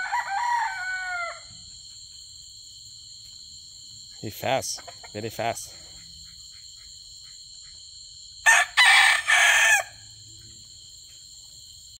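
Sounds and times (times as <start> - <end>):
rooster crowing: 0.0 - 1.7, 8.4 - 10.1.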